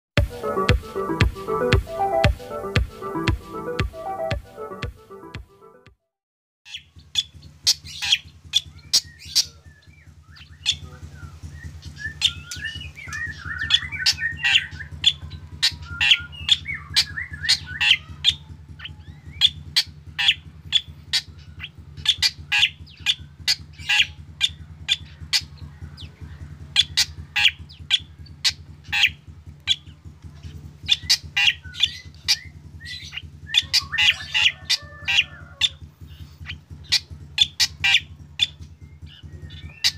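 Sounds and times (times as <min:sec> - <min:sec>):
low hum: 0:00.2 - 0:05.8.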